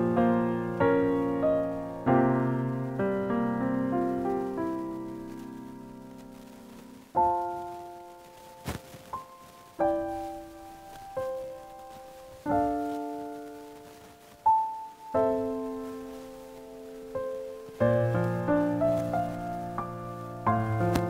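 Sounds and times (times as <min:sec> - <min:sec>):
slow piano chords: 0:00.0 - 0:21.0.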